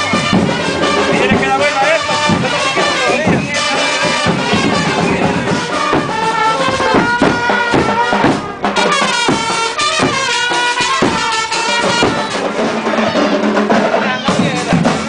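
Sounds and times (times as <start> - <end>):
band music with steady beat: 0.0 - 15.0.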